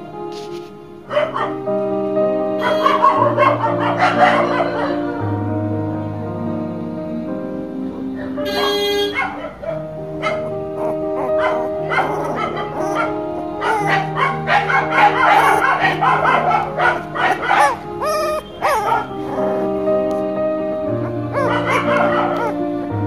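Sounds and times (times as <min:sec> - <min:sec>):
background music with held notes: 0:00.0 - 0:23.0
puppy yipping and whimpering: 0:08.6 - 0:20.3, 0:21.0 - 0:22.6.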